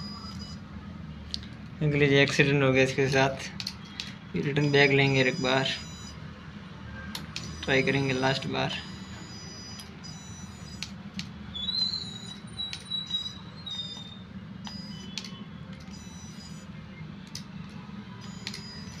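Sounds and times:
clicks: 0:13.9 - 0:16.6, 0:17.2 - 0:19.0.

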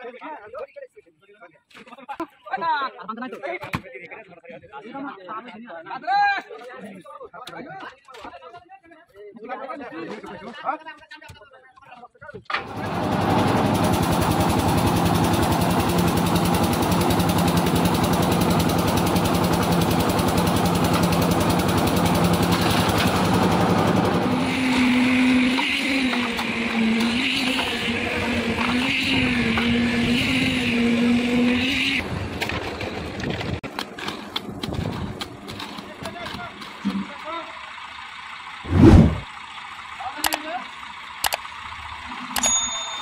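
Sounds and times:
concrete mixer engine running: 0:12.5 - 0:43.0.

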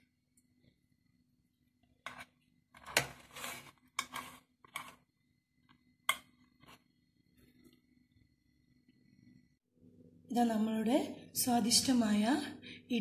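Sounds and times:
knife scraping metal plate: 0:02.0 - 0:05.0.

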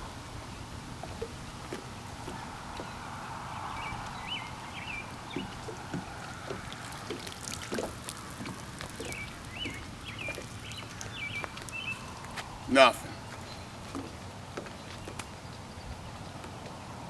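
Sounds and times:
water lapping: 0:00.0 - 0:16.3
songbird whistling: 0:03.7 - 0:05.6.

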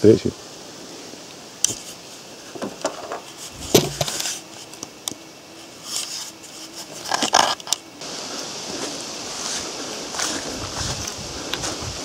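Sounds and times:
rustling: 0:01.7 - 0:12.0
dull thud: 0:02.6 - 0:04.2.

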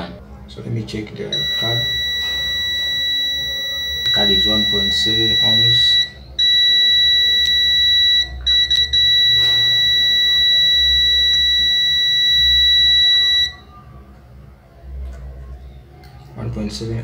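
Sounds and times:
multimeter continuity beep: 0:01.3 - 0:13.7.

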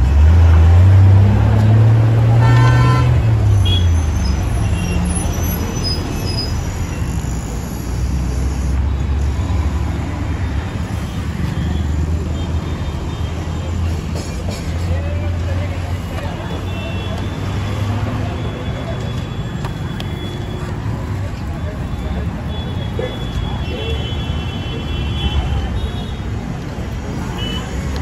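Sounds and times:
heavy vehicle engine rumble: 0:00.0 - 0:24.1
traffic hum: 0:00.0 - 0:28.0
horn tooting: 0:02.3 - 0:07.5.

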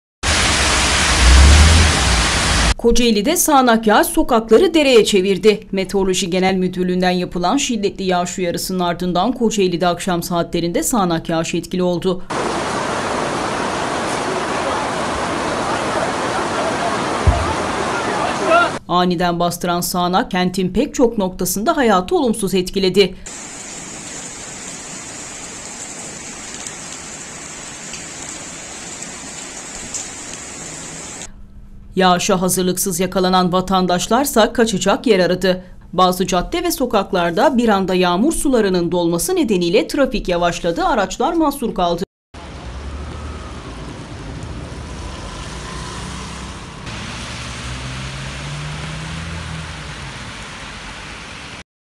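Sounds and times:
heavy rain on pavement and cars: 0:00.2 - 0:02.8, 0:12.3 - 0:18.8, 0:23.3 - 0:31.3, 0:42.4 - 0:51.6
faint raindrop ticks: 0:26.5 - 0:27.1, 0:27.8 - 0:30.5
car engines in slow traffic: 0:42.4 - 0:51.6.

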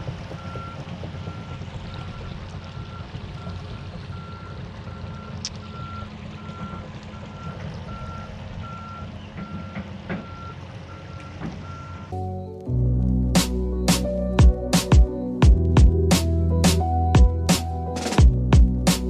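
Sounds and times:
diesel engine rumble: 0:00.0 - 0:19.0
backup alarm beeping: 0:04.1 - 0:12.6
music: 0:12.1 - 0:19.0.

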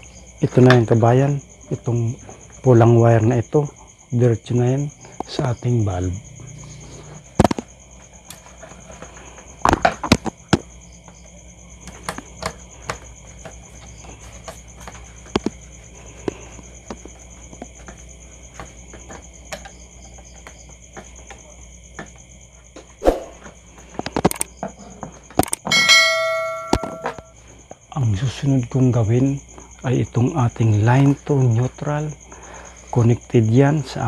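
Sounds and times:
steady high-pitched drone: 0:25.7 - 0:27.4.

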